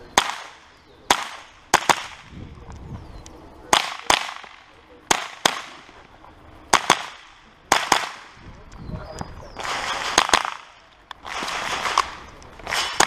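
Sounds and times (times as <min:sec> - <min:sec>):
rifle gunshots: 0:00.1 - 0:02.4, 0:03.7 - 0:08.4, 0:09.5 - 0:13.0.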